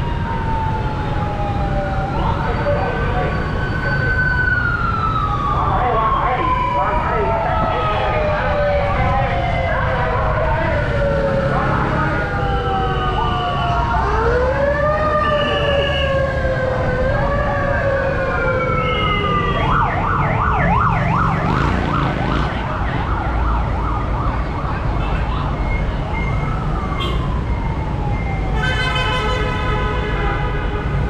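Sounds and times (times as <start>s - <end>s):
sirens wailing: 0.0s - 31.0s
traffic rumble: 0.0s - 31.0s
car horn: 28.6s - 31.0s.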